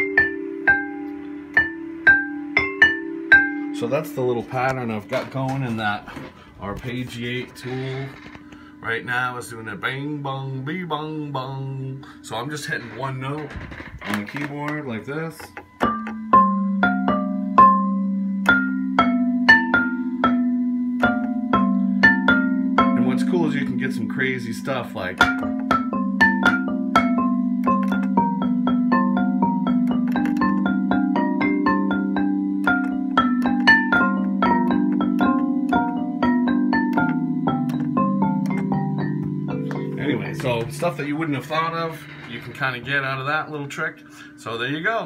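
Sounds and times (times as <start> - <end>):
falling synthesizer arpeggio notes: 15.9 - 43.6.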